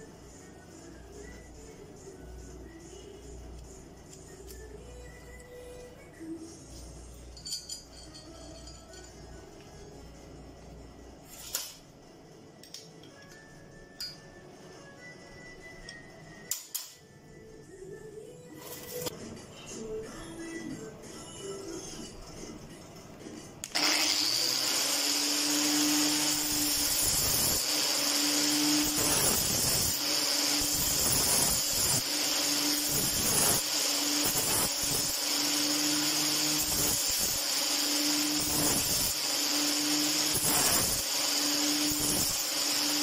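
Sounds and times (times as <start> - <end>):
angle grinder whining: 23.7 - 43.0.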